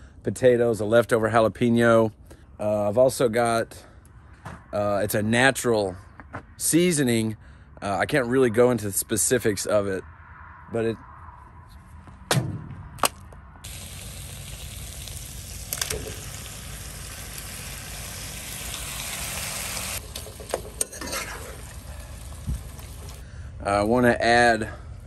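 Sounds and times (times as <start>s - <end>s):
vegetables poured into pan: 13.7s - 19.9s
vegetables sizzling in a pan: 13.7s - 23.2s
spatula scraping pan: 20.5s - 22.0s.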